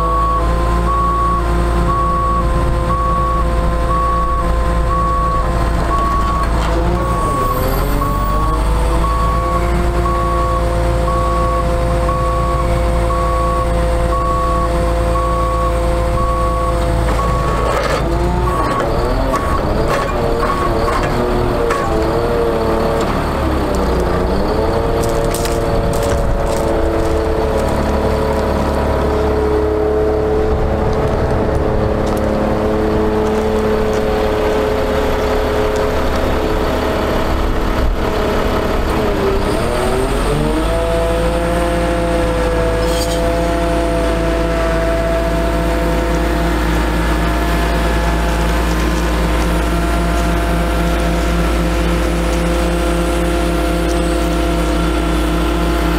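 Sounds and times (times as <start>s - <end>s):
diesel truck engine running: 0.0s - 55.9s.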